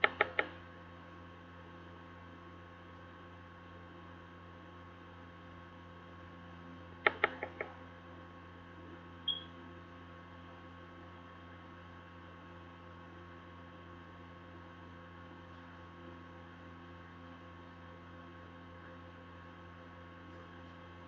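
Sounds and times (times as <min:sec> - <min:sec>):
electrical hum: 0:00.0 - 0:21.0
short high beep: 0:09.3 - 0:09.5.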